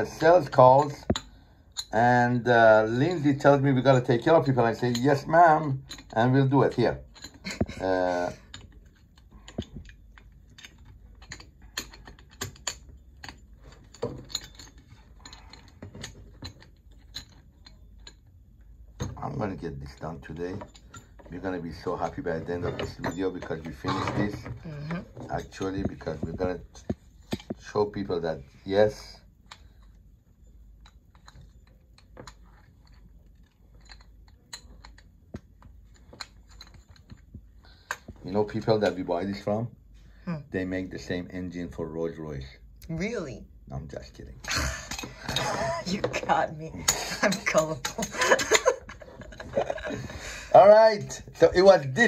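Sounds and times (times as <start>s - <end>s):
clicks and rattles of plastic parts: 3.0s - 27.8s, 30.8s - 39.4s.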